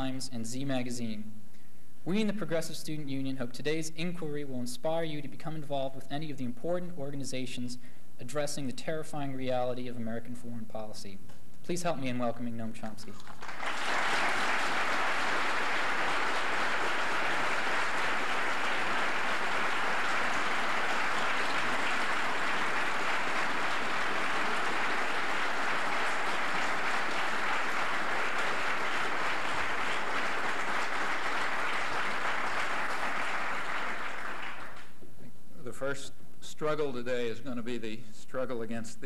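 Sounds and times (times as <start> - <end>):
audience applauding: 13.2 - 35.0.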